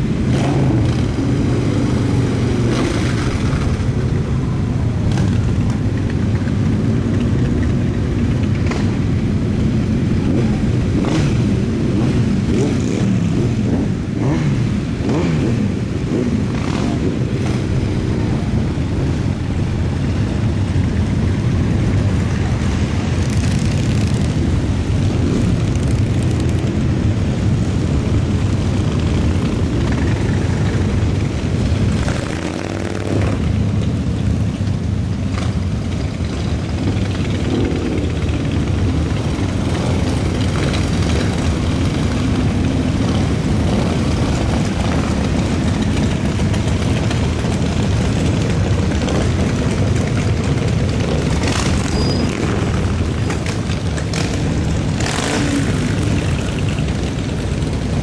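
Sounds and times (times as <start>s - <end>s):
motorcycles riding past: 0.0s - 58.0s.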